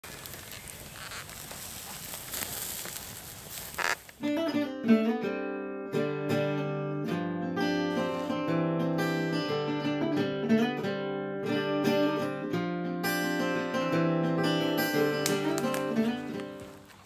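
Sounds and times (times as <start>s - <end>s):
campfire crackling and hissing: 0.0s - 4.3s, 7.8s - 8.5s, 14.4s - 17.0s
strummed acoustic guitar music: 4.2s - 17.0s.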